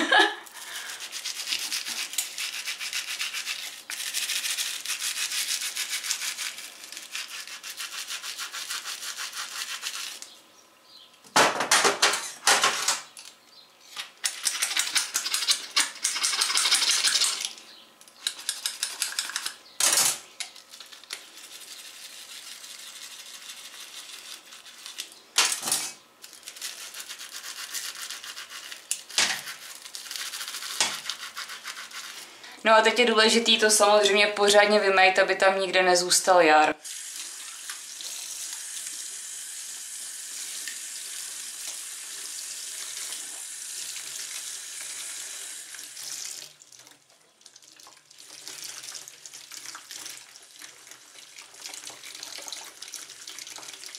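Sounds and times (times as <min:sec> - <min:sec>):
bottle brush scrubbing: 0:00.5 - 0:10.2, 0:26.5 - 0:32.3.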